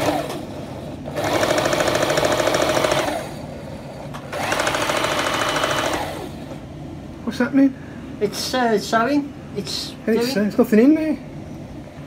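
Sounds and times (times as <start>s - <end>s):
sewing machine stitching rapidly: 0.0s - 0.4s, 1.1s - 3.4s, 4.3s - 6.3s.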